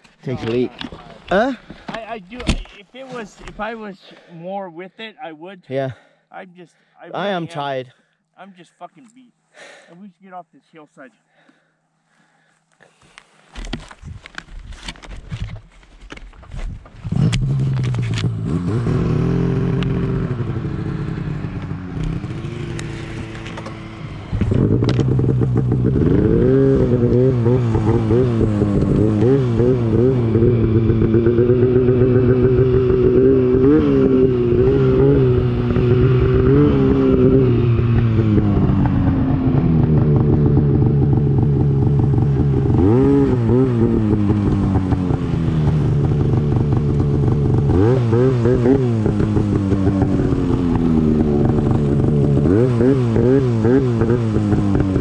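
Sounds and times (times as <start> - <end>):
snowmobile engine revving: 7.2 - 7.8, 17.1 - 55.0.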